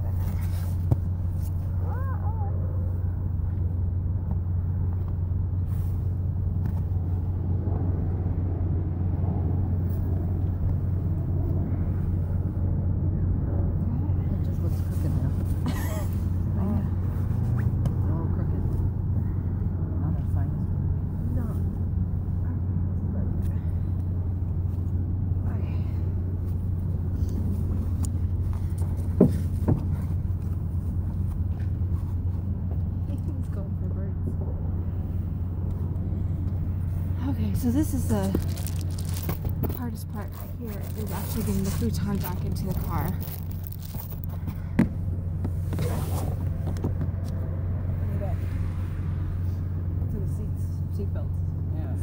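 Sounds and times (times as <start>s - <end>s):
steady low rumble: 0.0s - 52.0s
dull thumps of bedding in car: 29.0s - 30.2s.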